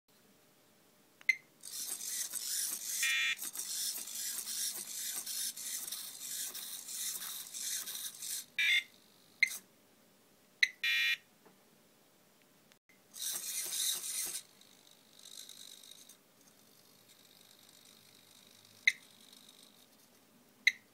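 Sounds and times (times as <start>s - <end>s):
electronic beep: 3.0s - 3.4s, 8.6s - 9.6s, 10.6s - 11.2s.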